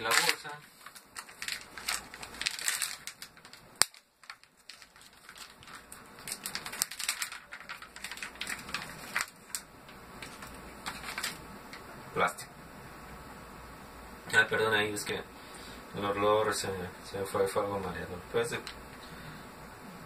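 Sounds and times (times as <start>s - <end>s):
plastic bag crinkling: 0.0s - 11.8s.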